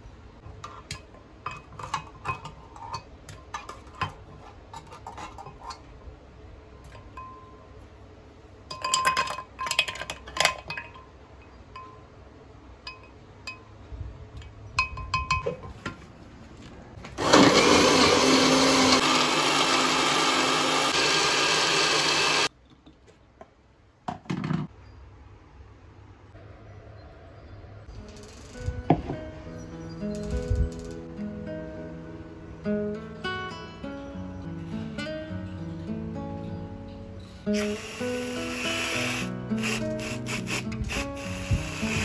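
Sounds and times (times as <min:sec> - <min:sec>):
glass and dishes clinking: 0:00.9 - 0:04.2, 0:07.0 - 0:07.7, 0:08.7 - 0:12.1, 0:12.8 - 0:13.7, 0:14.8 - 0:15.8
electric blender running: 0:17.2 - 0:22.5, 0:37.5 - 0:42.0.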